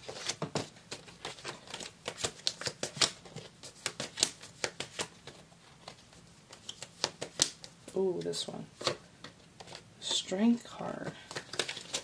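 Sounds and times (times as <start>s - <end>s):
cards being shuffled: 0.0s - 10.2s, 11.0s - 12.0s.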